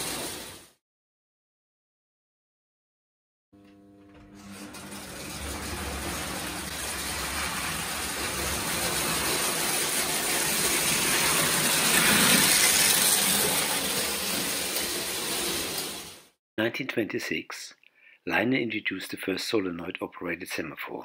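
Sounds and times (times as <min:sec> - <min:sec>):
toy trains rumbling on metal track: 0:04.8 - 0:16.2.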